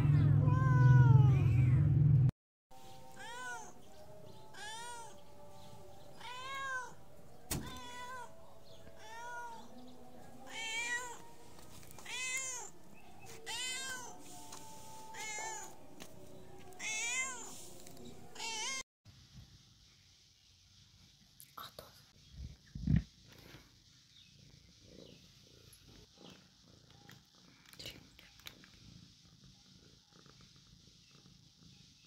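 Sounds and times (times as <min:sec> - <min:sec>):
cat meowing: 0:00.4 - 0:01.8, 0:03.1 - 0:03.8, 0:04.5 - 0:05.2, 0:06.2 - 0:07.0, 0:07.6 - 0:09.7, 0:10.5 - 0:11.3, 0:12.0 - 0:12.8, 0:13.4 - 0:14.3, 0:15.1 - 0:15.8, 0:16.8 - 0:17.6, 0:18.3 - 0:18.8.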